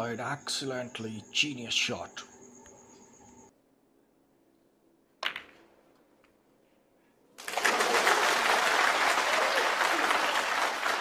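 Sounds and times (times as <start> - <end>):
snooker balls clicking: 5.2 - 6.4
audience applause: 7.4 - 11.0.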